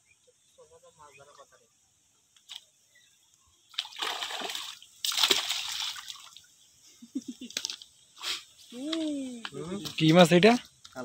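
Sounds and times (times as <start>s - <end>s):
fish thrashing and splashing: 3.8s - 6.3s.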